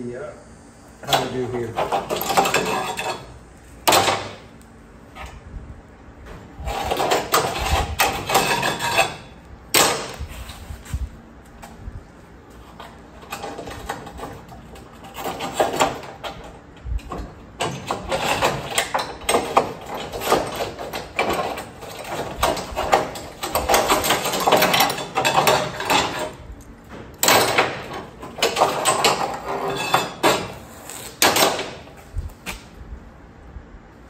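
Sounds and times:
arc welding crackling: 0:00.0 - 0:05.2, 0:24.9 - 0:32.8.

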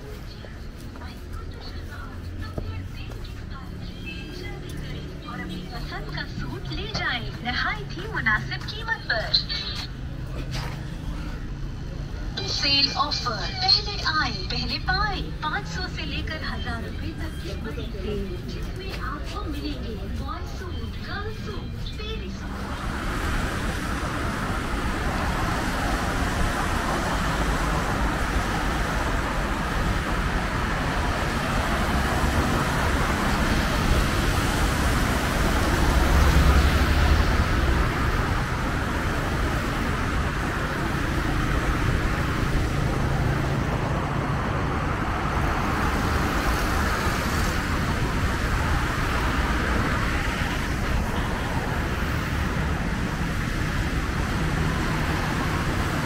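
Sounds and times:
deep vehicle passing: 0:21.7 - 0:56.0
cars passing on wet road: 0:22.4 - 0:56.0.

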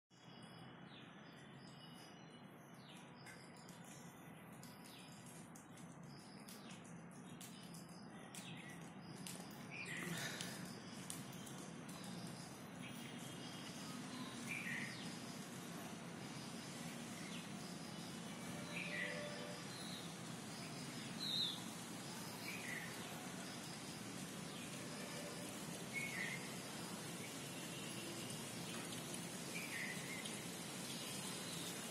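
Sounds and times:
high-pitched chirps and ticks: 0:10.4 - 0:15.1.

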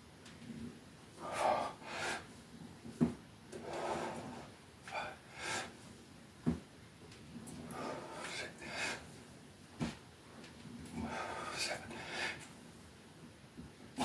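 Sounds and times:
man breathing hard: 0:01.2 - 0:02.3, 0:03.6 - 0:05.9, 0:07.7 - 0:09.2, 0:11.0 - 0:12.5.

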